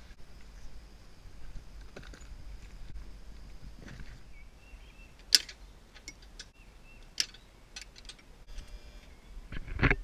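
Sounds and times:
trailer hitch metal clicks: 5.2s - 8.3s.

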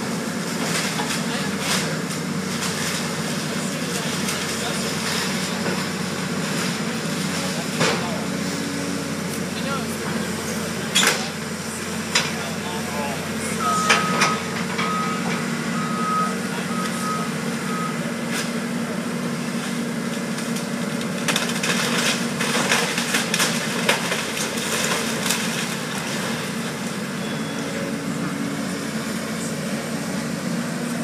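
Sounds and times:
excavator diesel engine running: 0.0s - 31.0s
interrupted beeping: 13.5s - 18.0s, 27.2s - 28.1s
debris cracking and crunching: 19.7s - 27.1s.

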